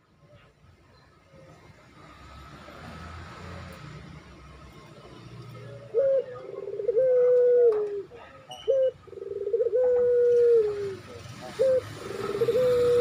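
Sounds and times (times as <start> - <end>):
dove cooing: 5.8 - 13.0.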